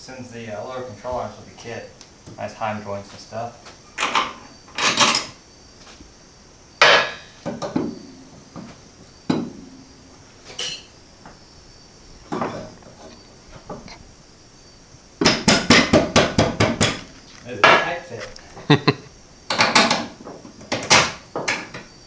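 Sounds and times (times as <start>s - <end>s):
metallic clanks and knocks: 4.0s - 5.4s, 6.8s - 9.8s, 12.3s - 14.0s.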